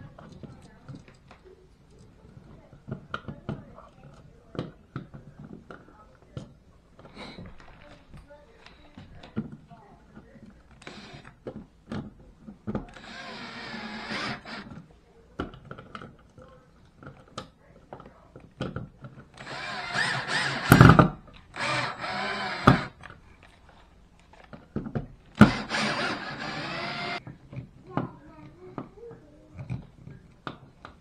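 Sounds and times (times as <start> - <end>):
cordless drill driving screws: 10.7 - 11.4, 12.9 - 14.8, 19.3 - 23.0, 25.3 - 27.2.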